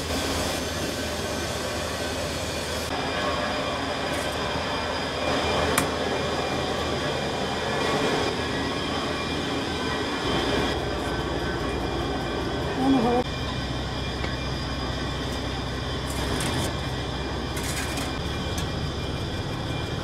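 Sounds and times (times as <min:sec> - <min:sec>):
machinery running: 0:00.0 - 0:20.0.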